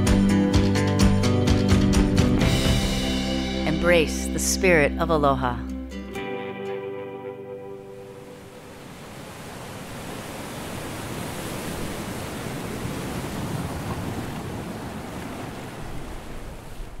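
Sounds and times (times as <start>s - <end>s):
ocean surf rushing: 1.5s - 4.1s, 7.6s - 17.0s.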